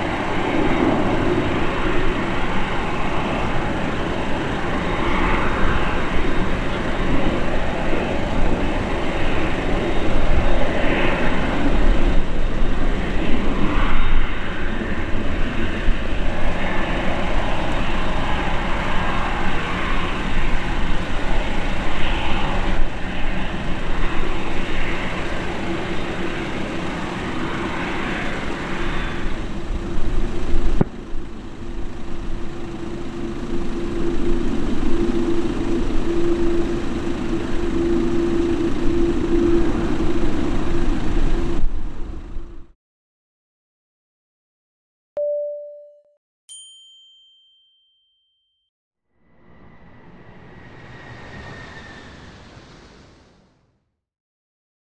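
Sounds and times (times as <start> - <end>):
jet engines rumbling: 0.0 - 42.7, 49.3 - 53.8
steady hum: 29.4 - 42.7.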